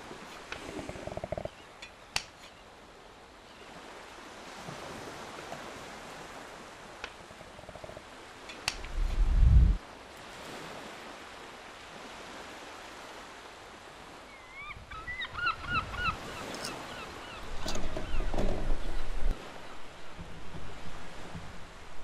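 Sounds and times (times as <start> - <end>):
heavy low rumble: 8.8 - 9.8.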